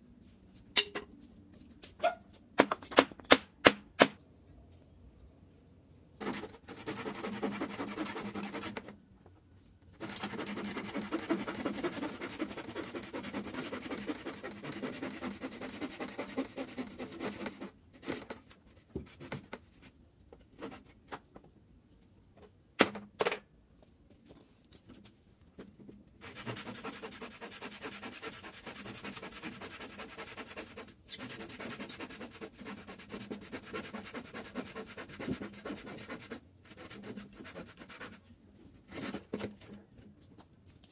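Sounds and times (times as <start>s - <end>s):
handsaw cutting wood: 6.2s - 8.9s, 10.0s - 18.3s, 26.2s - 38.2s.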